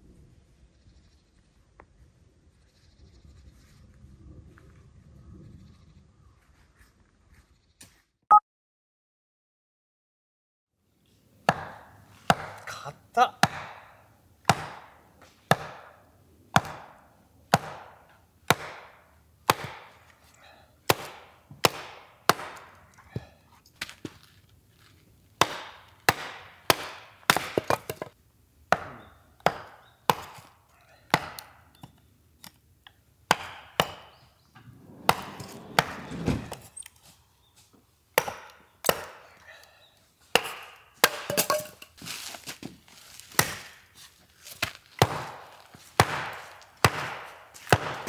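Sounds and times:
axe chopping wood: 11.4s - 12.8s, 13.4s - 24.2s, 25.4s - 32.6s, 33.3s - 34.2s, 34.8s - 35.9s, 38.1s - 39.4s, 40.3s - 41.8s, 43.2s - 43.9s, 44.5s - 48.0s.

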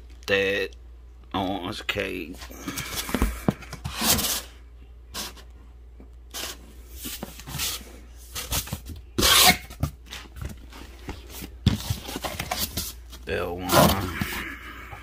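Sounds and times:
cardboard and wrapping rubbing: 6.4s - 14.4s.

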